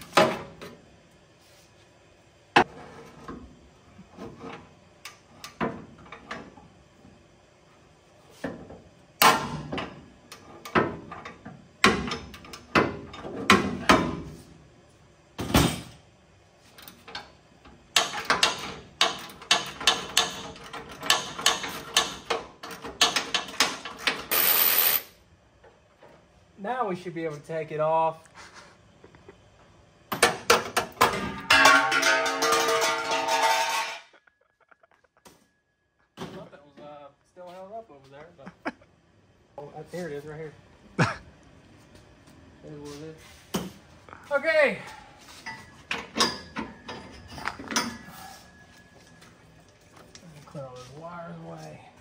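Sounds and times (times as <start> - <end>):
metal tool clanks and knocks: 30.1 - 34.2.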